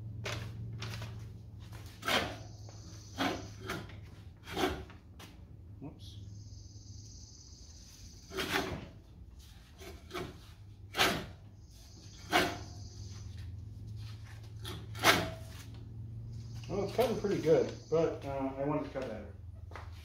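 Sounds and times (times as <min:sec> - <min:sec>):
reel mower blades snipping paper: 0:16.7 - 0:17.8.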